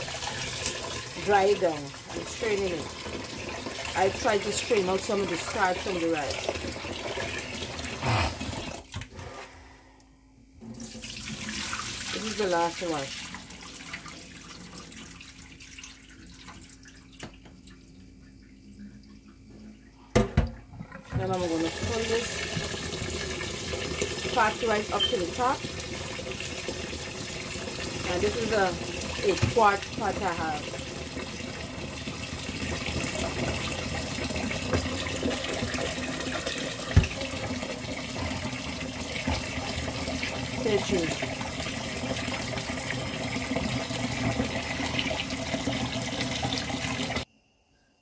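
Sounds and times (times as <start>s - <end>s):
water pouring into a steel sink: 0.0s - 9.1s, 10.6s - 19.5s, 21.0s - 47.2s
faint steady hum: 12.4s - 22.7s.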